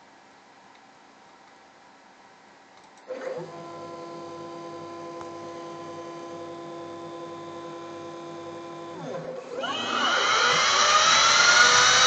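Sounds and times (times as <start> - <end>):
milling machine spindle whine: 8.4 - 12.0.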